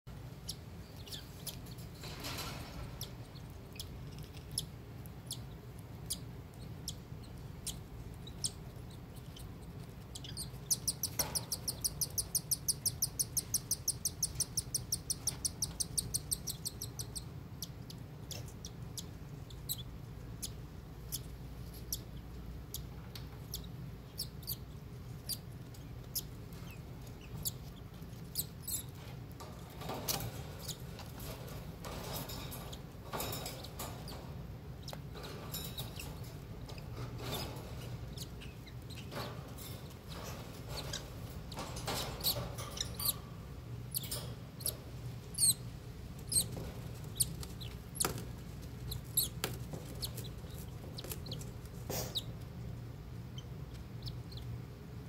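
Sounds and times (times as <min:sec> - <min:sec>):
chicks chirping: 0:00.3 - 0:45.6, 0:46.2 - 0:48.2, 0:48.8 - 0:52.4, 0:53.3 - 0:54.6.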